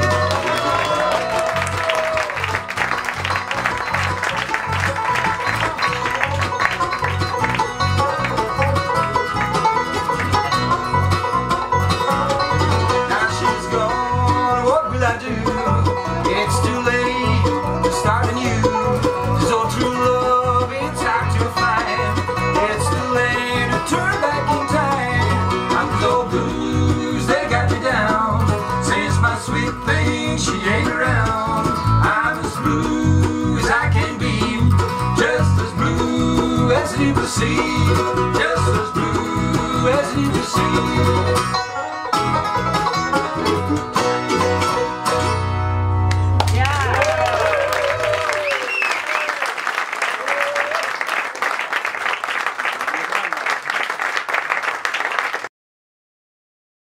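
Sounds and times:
bluegrass band playing: 0.0 - 48.8
two men singing: 12.9 - 41.5.

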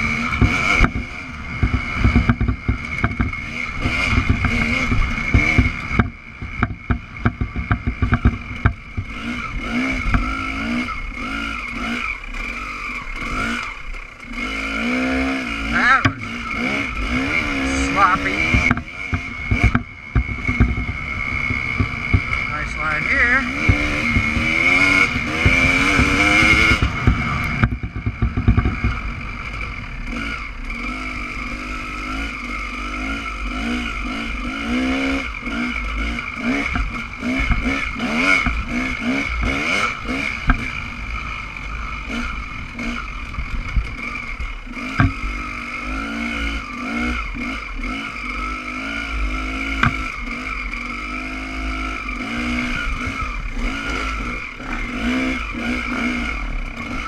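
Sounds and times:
dirt bike engine revving: 0.0 - 57.0
sharp knocks: 18.5 - 22.4, 44.9 - 45.2, 49.8 - 50.1.

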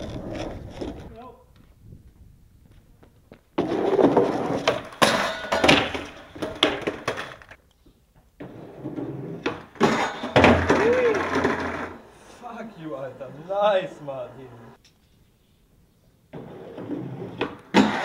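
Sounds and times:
skateboard wheels rolling on concrete: 0.0 - 14.8, 16.1 - 18.0
skateboard clattering down: 3.6 - 7.6, 8.4 - 12.0, 16.3 - 18.0.

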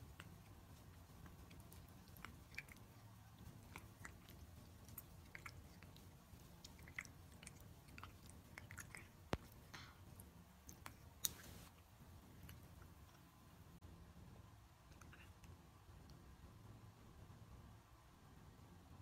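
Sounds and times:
low room hum: 0.0 - 19.0
cat licking wet tongue clicks: 0.1 - 9.7.

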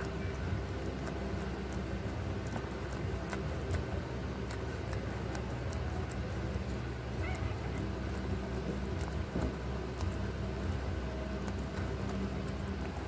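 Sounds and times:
dog licking wet clicks: 0.0 - 13.0
low steady hum: 0.0 - 13.0
puppy whimper: 7.1 - 8.2.

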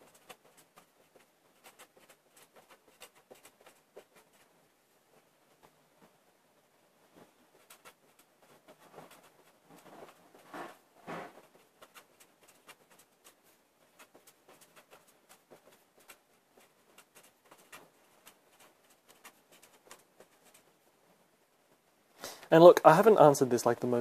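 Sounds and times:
pen scratching on paper: 0.0 - 4.5, 7.2 - 20.9.

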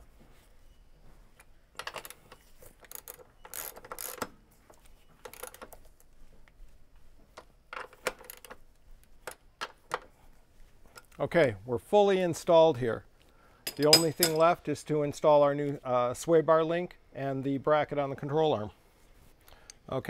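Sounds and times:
wrench clicking on bolts: 2.8 - 4.3.

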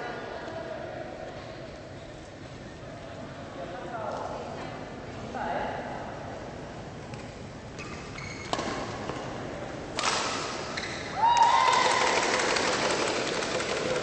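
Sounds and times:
shoes squeaking on court: 7.7 - 9.3, 10.7 - 11.2
racket striking shuttlecock: 9.9 - 11.1.

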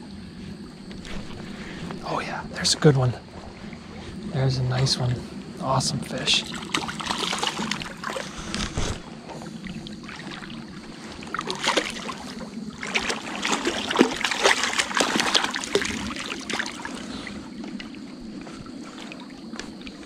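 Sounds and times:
creek trickling: 0.4 - 20.0
fish splashing in water: 6.4 - 20.0.

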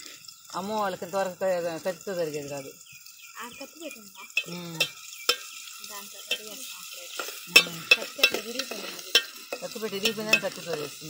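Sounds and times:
onions sizzling in oil: 0.0 - 11.0
ladle clinking against pot: 4.4 - 5.5, 7.2 - 11.0.

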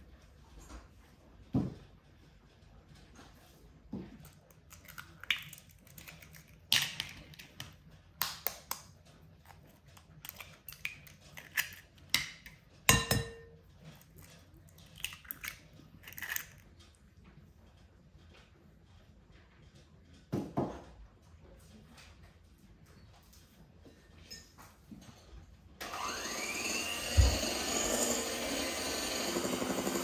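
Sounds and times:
cookware and utensils knocking: 12.2 - 13.6.

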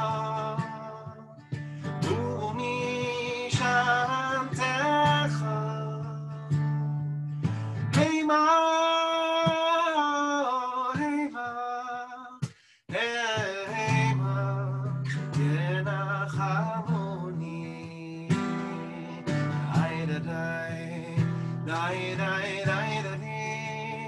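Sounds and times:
man singing: 0.0 - 6.8, 7.9 - 24.0
acoustic guitar strumming: 0.0 - 24.0.

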